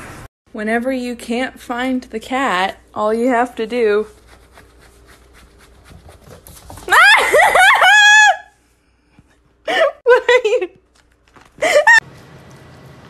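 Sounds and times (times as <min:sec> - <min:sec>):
person shrieking with laughter: 0:06.9 - 0:08.6.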